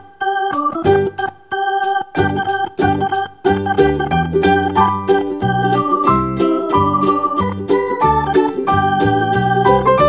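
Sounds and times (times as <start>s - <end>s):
keyboard chords over a beat: 0.0s - 10.0s.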